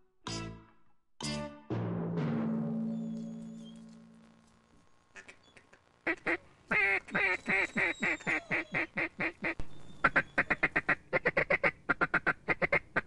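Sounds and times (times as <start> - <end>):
duck quacking: 5.2 - 13.0.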